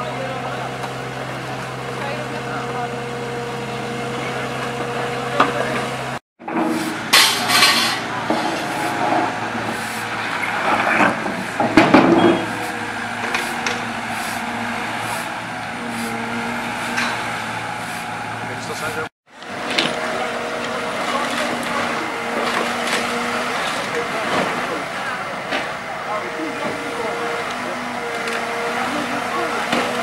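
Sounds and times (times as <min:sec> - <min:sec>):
excavator diesel engine running: 0:00.0 - 0:30.0
shovels scraping on paving: 0:06.6 - 0:18.1.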